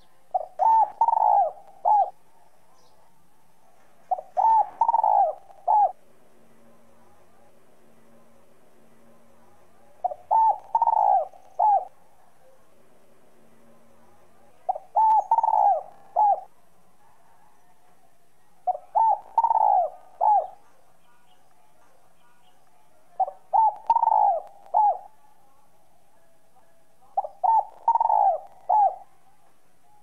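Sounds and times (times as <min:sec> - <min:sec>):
dove cooing: 0:00.0 - 0:03.1, 0:03.7 - 0:06.0, 0:09.7 - 0:12.6, 0:14.3 - 0:17.8, 0:18.6 - 0:20.8, 0:23.2 - 0:25.3, 0:27.0 - 0:30.0.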